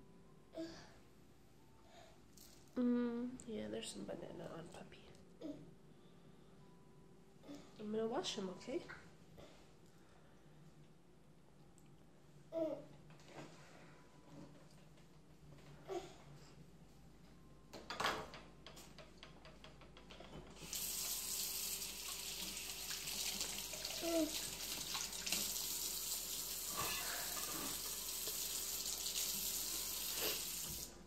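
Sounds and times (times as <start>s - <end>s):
tap water running into sink: 20.5s - 31.0s.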